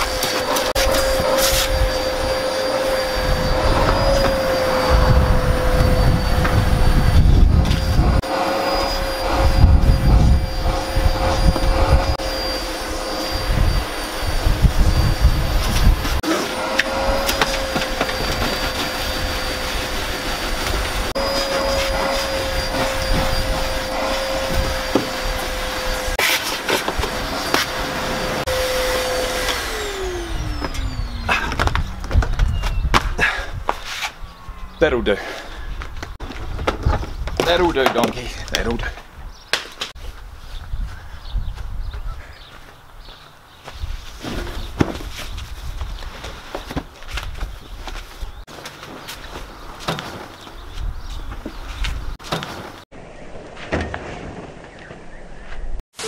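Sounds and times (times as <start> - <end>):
vacuum cleaner motor whine: 0.0 - 32.9.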